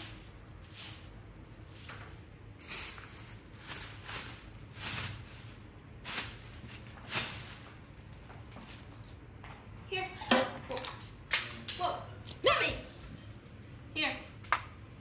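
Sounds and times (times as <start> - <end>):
plastic bag rustling and crinkling: 1.5 - 9.4.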